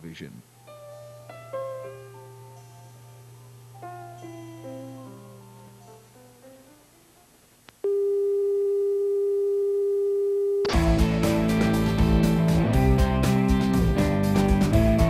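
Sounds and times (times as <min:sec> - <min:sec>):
loud band music: 0:10.7 - 0:15.0.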